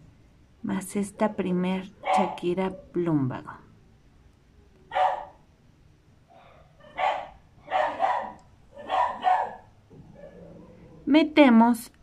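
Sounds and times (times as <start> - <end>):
dog barking: 2.0 - 3.0, 4.9 - 5.5, 6.3 - 11.0.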